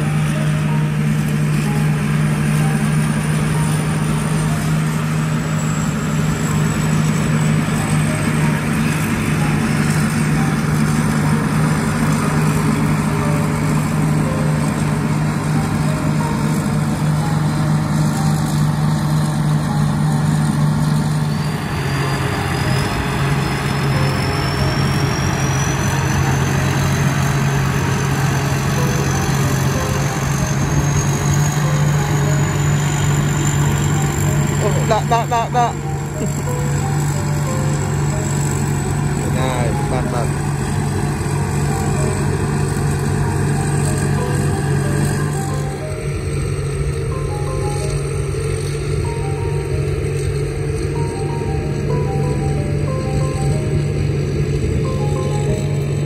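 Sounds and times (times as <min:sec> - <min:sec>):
combine harvester engine drone: 0:00.0 - 0:56.0
high whine: 0:00.0 - 0:56.0.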